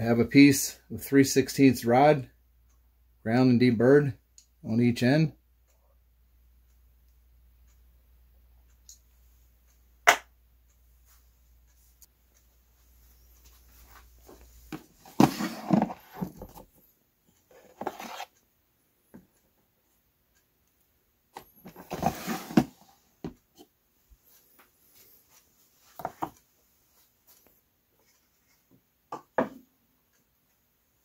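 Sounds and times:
plastic drawer sliding: 15.0s - 16.4s, 21.7s - 22.9s
parts clattering in drawer: 21.7s - 22.8s.

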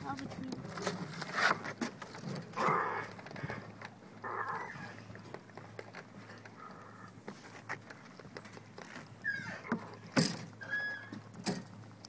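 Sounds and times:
breathy noises: 2.4s - 7.7s.

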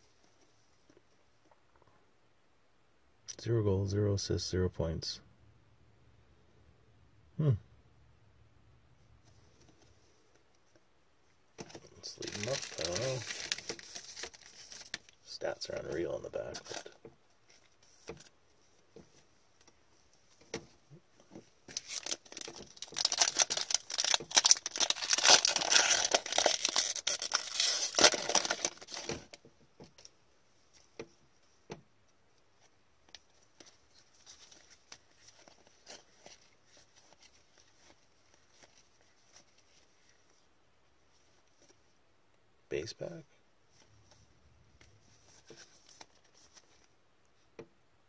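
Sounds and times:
cards being shuffled: 11.6s - 15.1s, 21.7s - 29.4s
wrapper ripping and crackling: 11.7s - 15.2s, 21.7s - 29.4s.

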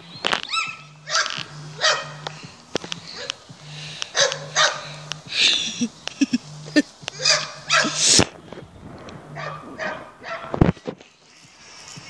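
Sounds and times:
dog barking: 0.5s - 2.2s, 4.1s - 4.8s, 7.2s - 8.1s, 9.3s - 10.6s.

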